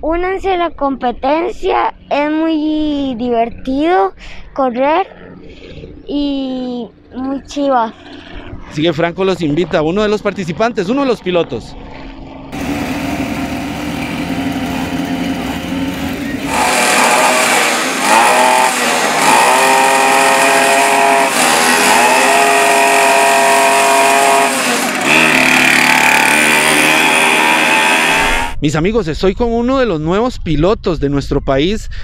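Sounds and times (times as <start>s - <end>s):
small engines revving: 10.2s - 28.6s.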